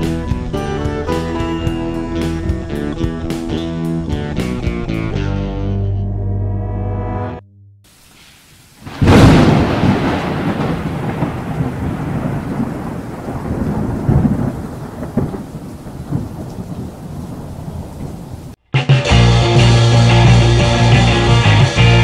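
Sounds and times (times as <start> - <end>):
rain hiss: 7.9 - 18.6
thunderclap and rolling thunder: 8.8 - 18.6.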